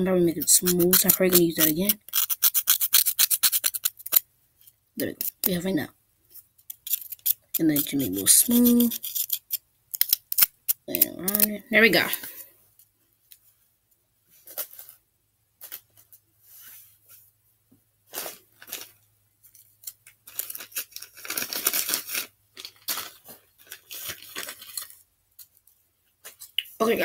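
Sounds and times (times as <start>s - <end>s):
sculpting tools scraping: 0.3s - 4.2s, 6.6s - 11.5s.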